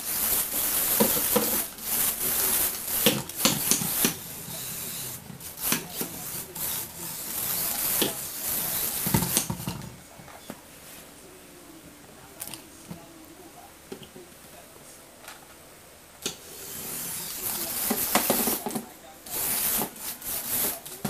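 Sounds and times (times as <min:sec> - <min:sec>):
rubber tyres rubbing on wooden floor: 0:00.0 - 0:09.9, 0:16.4 - 0:21.0
steady hiss: 0:00.0 - 0:21.0.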